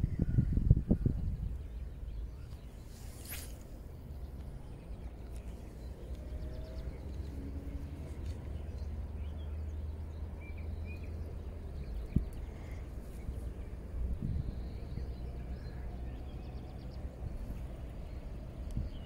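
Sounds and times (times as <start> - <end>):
fishing rod cast swish: 2.6 - 3.9.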